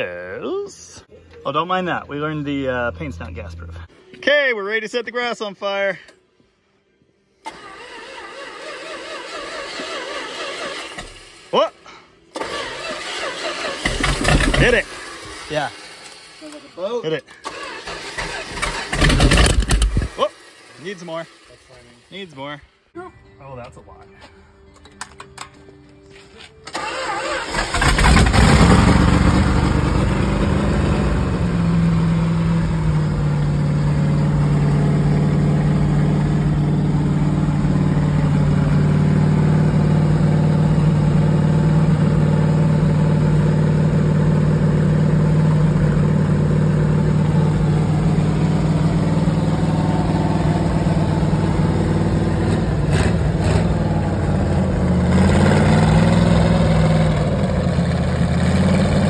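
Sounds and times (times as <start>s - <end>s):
engine firing up and running: 7.4s - 11.5s, 12.3s - 22.2s, 26.7s - 59.0s.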